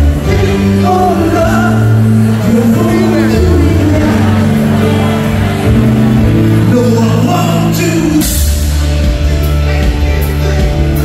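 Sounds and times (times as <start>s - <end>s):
heavy bass: 0.0s - 11.0s
live rock band: 0.0s - 11.0s
person singing: 0.0s - 11.0s
drums with cymbal crashes: 8.2s - 11.0s.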